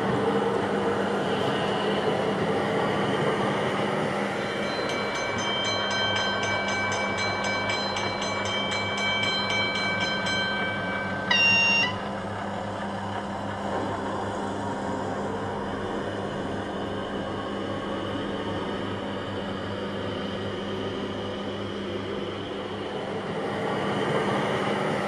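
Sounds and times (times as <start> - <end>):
bell ringing quickly: 4.4 - 12.1.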